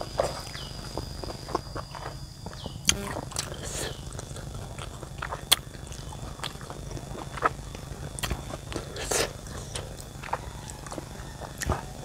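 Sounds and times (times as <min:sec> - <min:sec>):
person chewing with wet smacks: 0:02.9 - 0:11.9.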